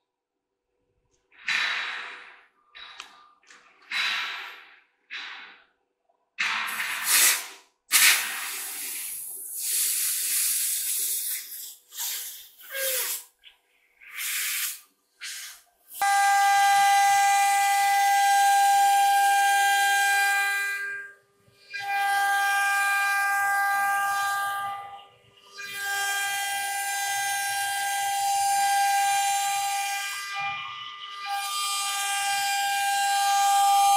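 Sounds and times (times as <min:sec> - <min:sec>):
short hissing bursts: 0:06.8 - 0:13.4, 0:14.0 - 0:16.0.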